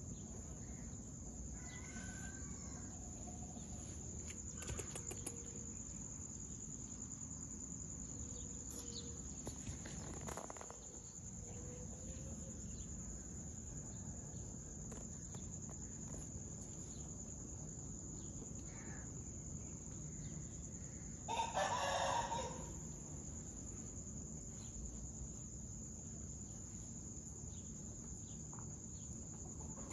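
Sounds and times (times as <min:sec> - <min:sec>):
low outdoor background noise: 0:00.0 - 0:29.9
rooster crowing: 0:01.5 - 0:03.4, 0:21.3 - 0:22.8.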